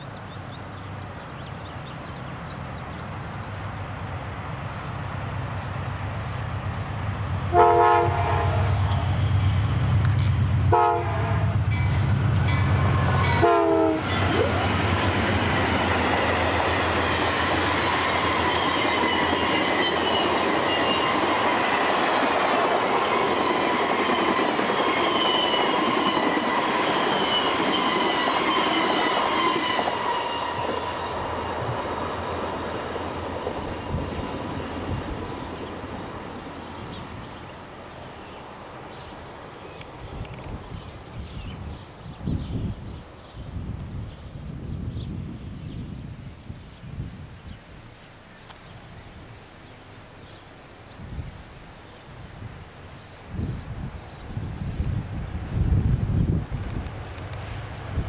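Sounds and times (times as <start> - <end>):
wheels roaring on rails: 0.1 - 44.6, 53.7 - 58.0
train horn blasts: 7.5 - 9.4, 10.7 - 14.5.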